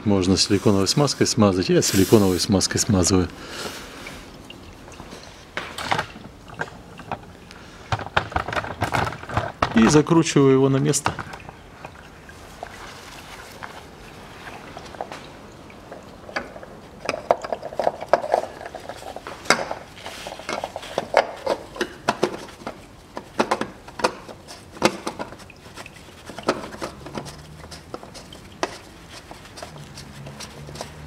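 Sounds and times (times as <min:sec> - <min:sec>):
cap screwing clicks and scrapes: 0:15.8 - 0:31.0.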